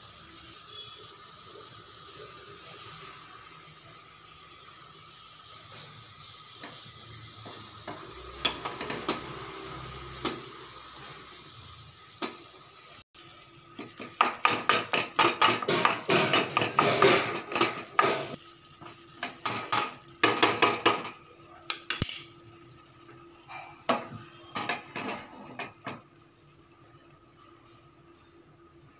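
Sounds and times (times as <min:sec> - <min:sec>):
wooden spatula scraping a pan: 0:24.5 - 0:25.8.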